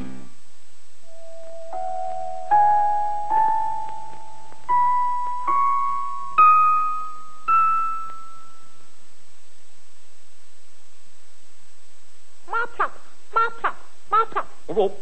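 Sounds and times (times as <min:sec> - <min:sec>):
keyboard notes climbing a scale: 0:01.1 - 0:08.8.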